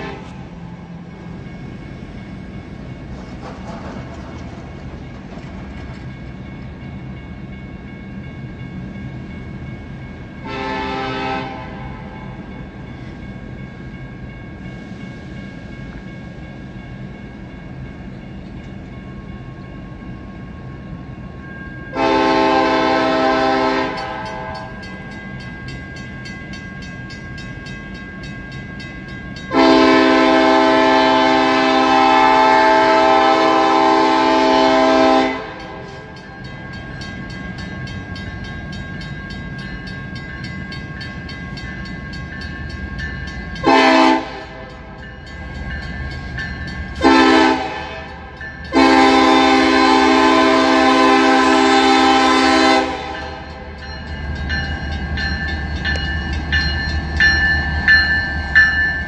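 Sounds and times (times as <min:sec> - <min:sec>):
locomotive air horn blasts: 0:00.0 - 0:00.5, 0:10.4 - 0:12.1, 0:21.9 - 0:24.8, 0:29.5 - 0:36.0, 0:43.6 - 0:44.7, 0:47.0 - 0:53.5
low train rumble: 0:00.0 - 0:59.0.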